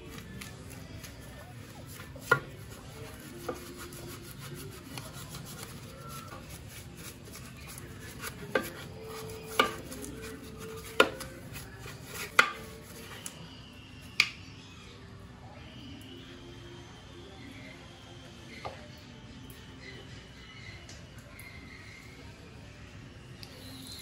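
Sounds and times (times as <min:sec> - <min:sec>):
brush scrubbing metal: 0:00.0 - 0:13.2
brush knocking on metal cover: 0:01.9 - 0:04.2, 0:07.6 - 0:12.8.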